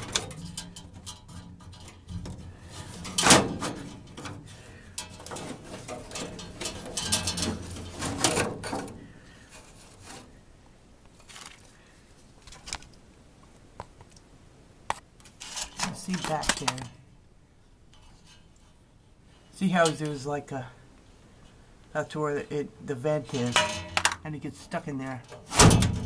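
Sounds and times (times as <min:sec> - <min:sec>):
plastic filter scraping metal: 0:00.0 - 0:10.4
rustles and knocks: 0:00.0 - 0:10.4, 0:11.1 - 0:14.2.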